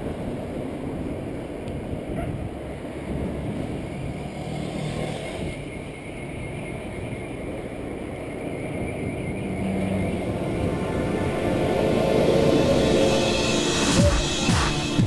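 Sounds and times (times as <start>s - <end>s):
wind noise: 0.0s - 4.5s, 5.1s - 14.3s
bicycle road noise: 0.0s - 11.2s
passing car traffic: 2.5s - 15.0s.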